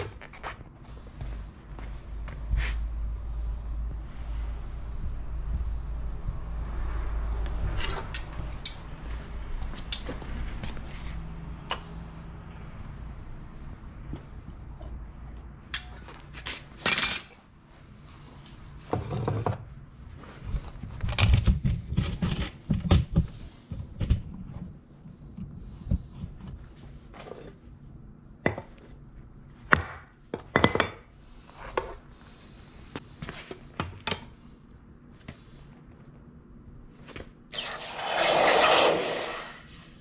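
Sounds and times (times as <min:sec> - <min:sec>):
low steady rumble: 0:00.6 - 0:16.3.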